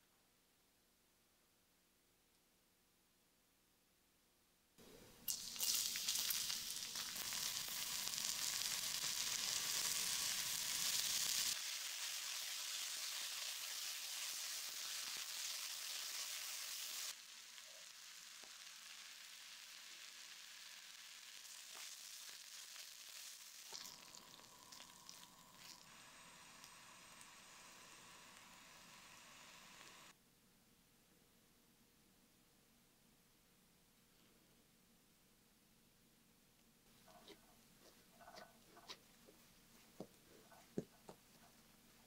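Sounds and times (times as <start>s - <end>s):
garlic and onion sizzling in pan: 5.3s - 30.2s
stirring clicks: 37.0s - 41.6s.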